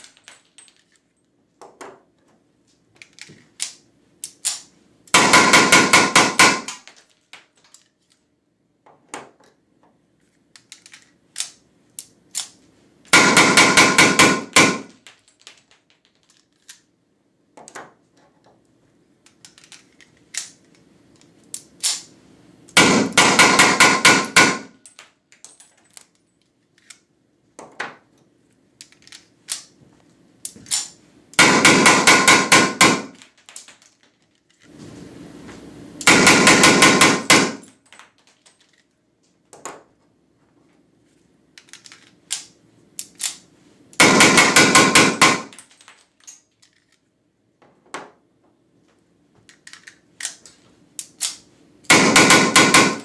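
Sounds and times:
blank pistol shots: 13.2 - 14.9, 22.8 - 24.7, 31.4 - 33.2, 36.1 - 37.6, 44.0 - 45.5, 51.9 - 53.0.

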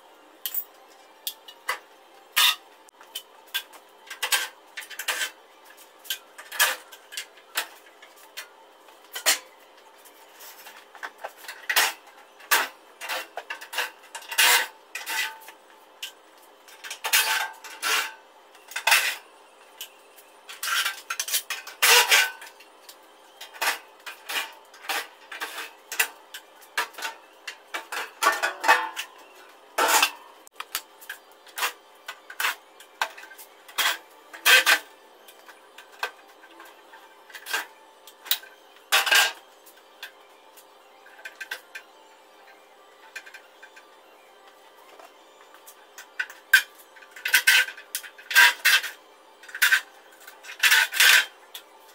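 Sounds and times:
tools clanking on metal panels: 26.8 - 29.2.

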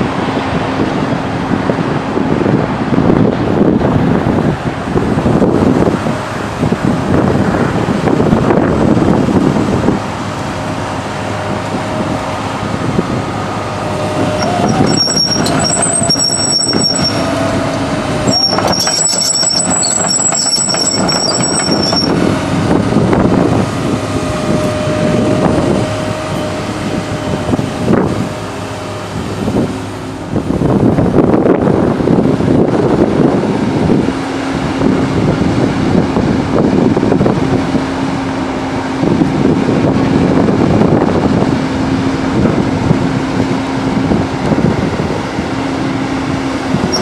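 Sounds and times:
excavator diesel engine running: 0.0 - 47.0
high-pitched squeal: 11.2 - 29.2.

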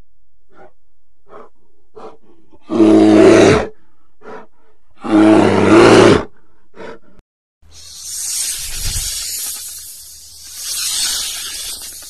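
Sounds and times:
breathy animal sounds: 0.5 - 7.2
large animal roaring: 2.0 - 6.3.

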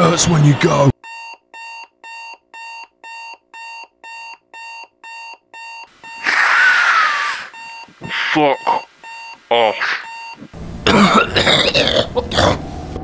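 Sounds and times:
alarm clock beeping: 1.0 - 6.4, 7.0 - 9.4, 10.0 - 10.5.

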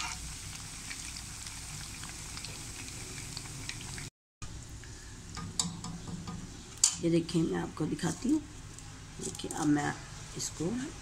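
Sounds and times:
food deep-frying in hot oil: 0.0 - 4.8.

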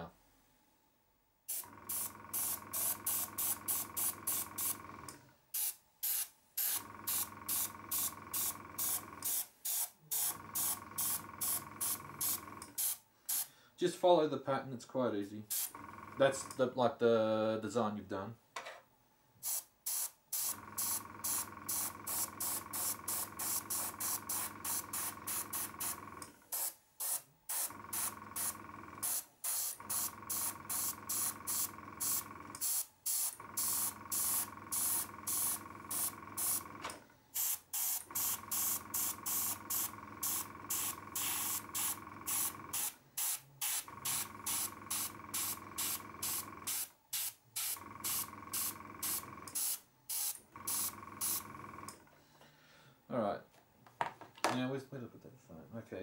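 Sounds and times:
airbrush spraying hiss: 1.5 - 4.8, 5.6 - 13.5, 19.4 - 36.6, 37.3 - 51.4.

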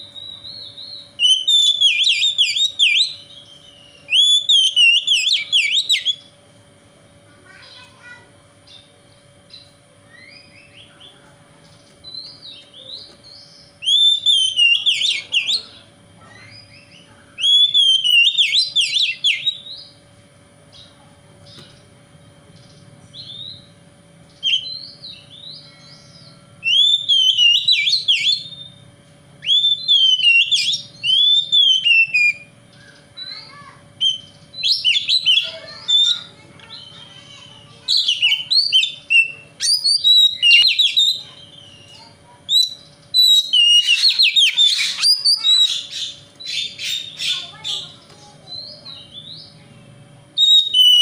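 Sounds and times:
bird singing whistled phrases: 0.1 - 6.3, 12.0 - 15.7, 16.4 - 20.0, 24.4 - 28.8, 29.4 - 37.1, 37.8 - 47.9, 50.4 - 51.0.

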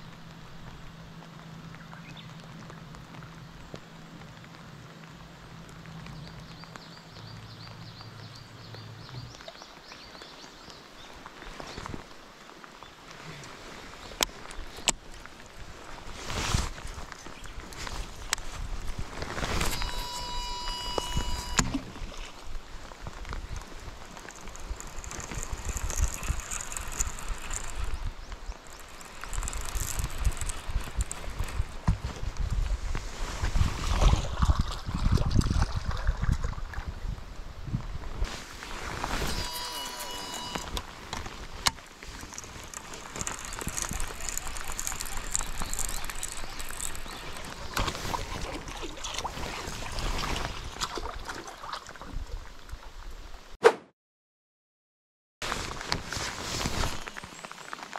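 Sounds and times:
heavy rain on water and jacket: 0.0 - 33.9
heavy rain on water: 0.1 - 7.2
fishing reel ticking: 24.2 - 31.8, 39.3 - 40.8, 42.2 - 47.6
wind buffeting microphone: 29.4 - 38.3.

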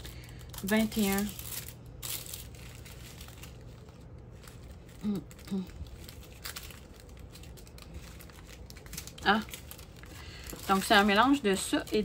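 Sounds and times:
plastic bags crinkling: 0.0 - 12.0
woman murmuring: 5.0 - 5.8.

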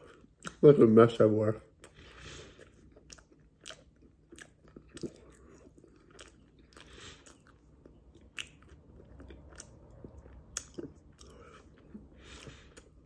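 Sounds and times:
person chewing flaky pastry: 0.0 - 0.6, 1.7 - 13.0.

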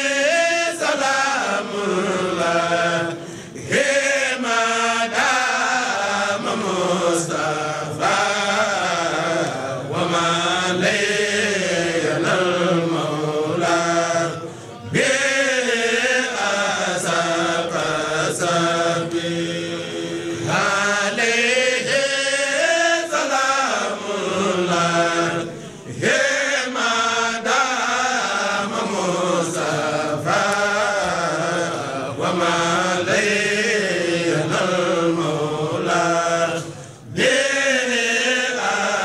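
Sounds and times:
devotional chanting: 0.0 - 39.0.

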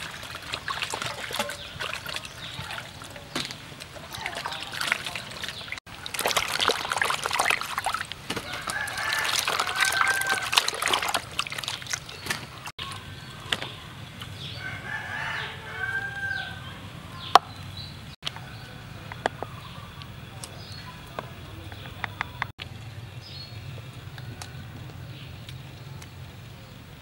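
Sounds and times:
water splashing in a basin: 0.0 - 13.7
rooster crowing: 8.4 - 11.1, 14.6 - 16.8.

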